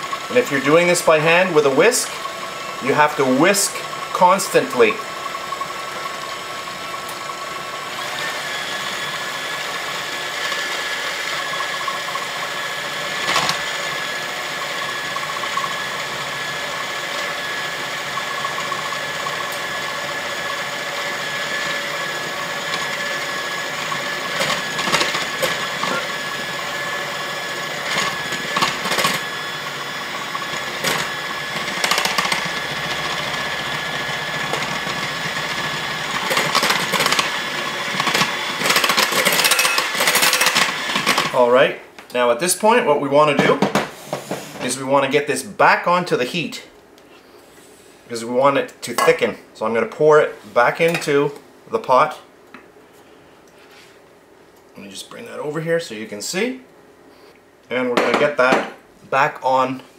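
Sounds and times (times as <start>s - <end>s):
electric hand mixer whirring: 0.0s - 41.4s.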